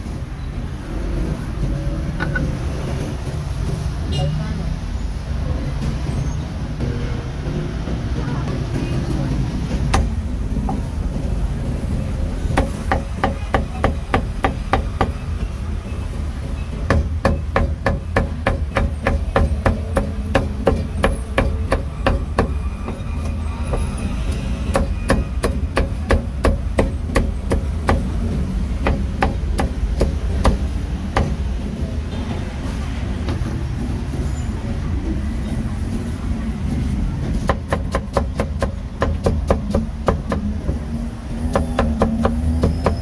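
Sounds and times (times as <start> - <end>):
meat cleaver chopping on wooden block: 41.4 - 42.8.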